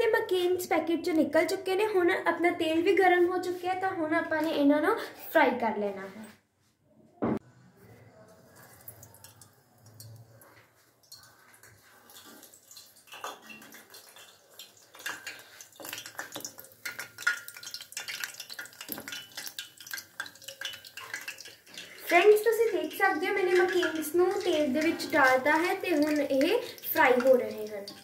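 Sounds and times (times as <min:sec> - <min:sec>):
potatoes sizzling in hot oil: 0:12.2 - 0:28.0.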